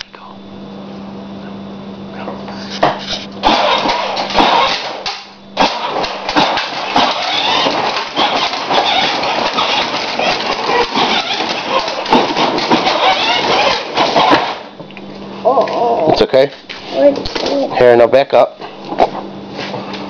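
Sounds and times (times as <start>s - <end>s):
toy truck motor and wheels rumbling: 2.6s - 5.0s, 5.6s - 14.6s.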